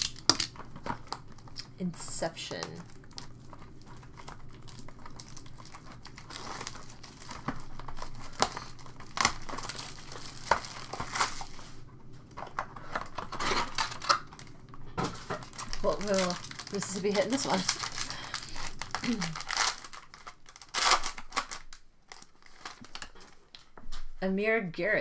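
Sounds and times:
plastic shrink wrap tearing: 0.0s - 23.7s.

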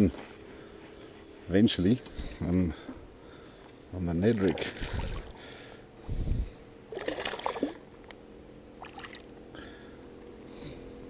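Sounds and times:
fish splashing: 6.9s - 7.8s, 8.8s - 9.3s.

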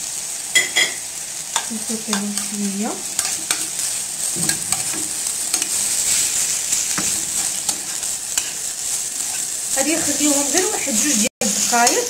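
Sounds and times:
food sizzling in frying pan: 0.0s - 12.0s
utensil scraping against pan: 2.1s - 12.0s.

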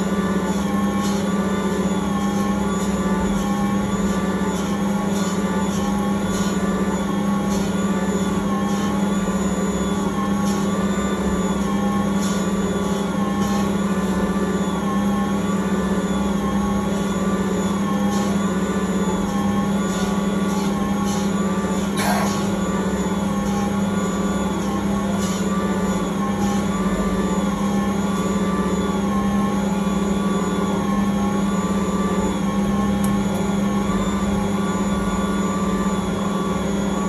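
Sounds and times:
stand mixer motor hum: 0.0s - 37.0s.

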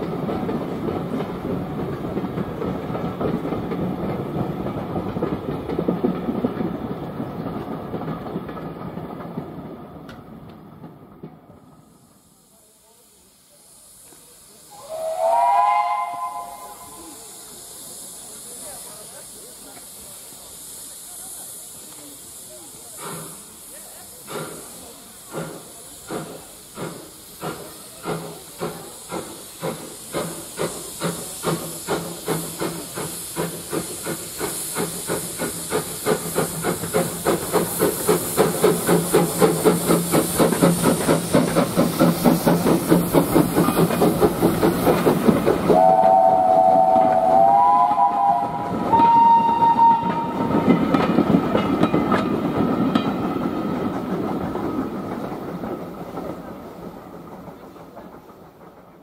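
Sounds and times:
hiss of steam: 0.0s - 59.0s
steam locomotive exhaust beats: 0.0s - 59.0s
train rolling past: 0.0s - 59.0s
steam whistle blasts: 14.7s - 17.6s, 45.7s - 50.8s.

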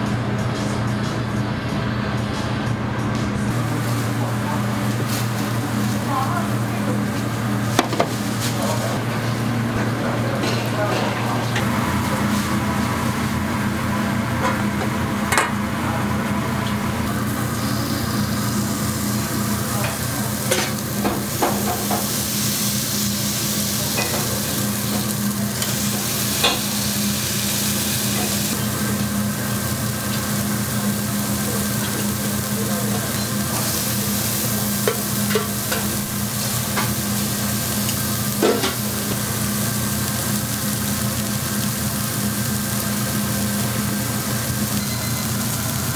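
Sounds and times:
food sizzling on a griddle: 3.5s - 9.5s, 17.0s - 45.9s.

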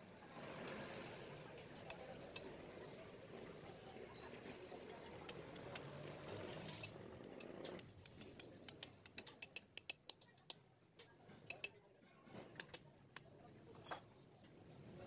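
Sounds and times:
light clicks of small engine parts: 4.2s - 11.8s.

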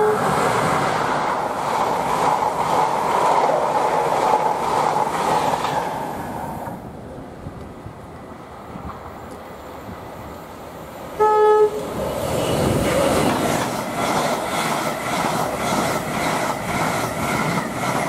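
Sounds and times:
train horn blast: 0.0s - 0.4s, 11.2s - 11.9s
train wheels clattering: 11.8s - 18.0s.

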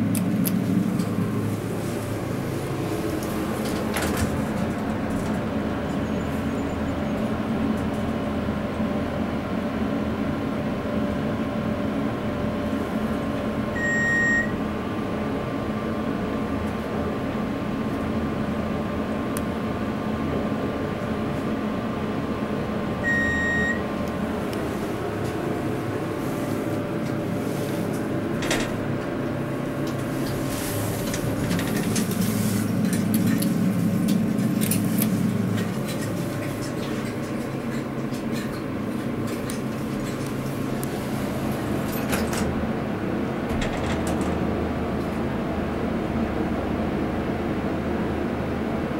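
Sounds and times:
elevator drive humming: 0.0s - 48.9s
short electronic beeps: 13.8s - 14.6s, 23.0s - 23.8s.

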